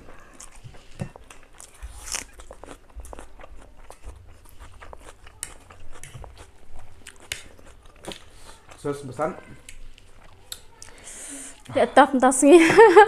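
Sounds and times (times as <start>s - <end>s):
wet chewing smacks: 0.1s - 11.0s.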